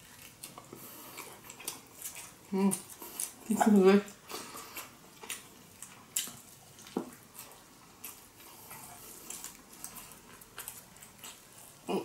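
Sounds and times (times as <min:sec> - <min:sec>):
wet chewing mouth sounds: 0:00.0 - 0:12.0.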